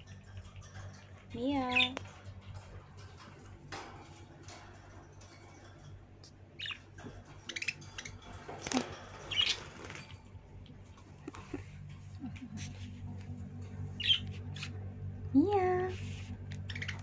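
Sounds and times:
low steady hum: 0:00.0 - 0:17.0
budgerigars chirping: 0:06.6 - 0:08.3, 0:09.2 - 0:10.0, 0:14.0 - 0:14.8, 0:16.6 - 0:17.0.

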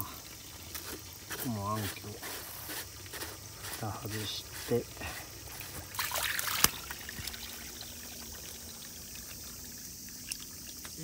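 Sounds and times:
water trickling through pipe: 0:00.0 - 0:11.0.

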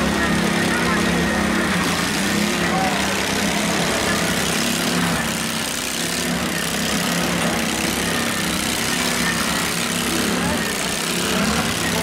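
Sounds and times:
constant noisy wash: 0:00.0 - 0:12.0
garden tractor engines droning: 0:00.0 - 0:12.0.

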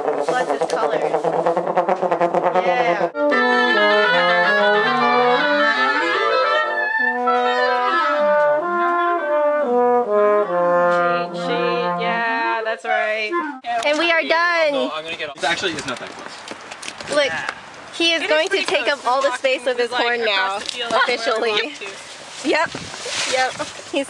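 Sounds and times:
french horn rapid repeated notes: 0:00.0 - 0:12.3
wind instruments playing runs: 0:00.0 - 0:14.1.

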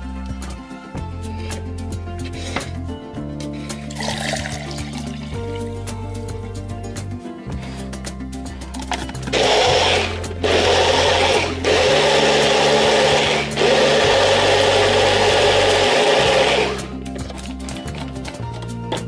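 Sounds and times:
background music with low notes: 0:00.0 - 0:19.0
blender motor churning liquid: 0:09.3 - 0:17.0.

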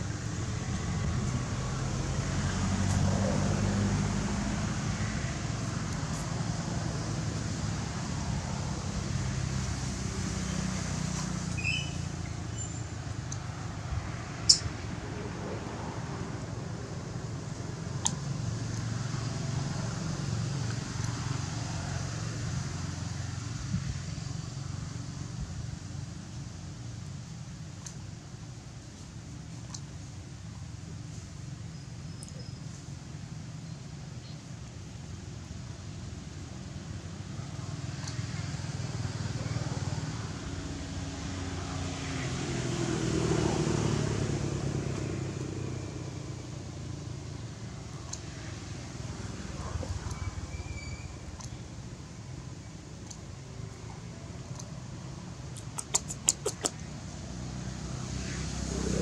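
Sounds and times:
vehicle engine passing by: 0:00.0 - 0:12.4, 0:37.9 - 0:50.6, 0:55.5 - 0:59.0.

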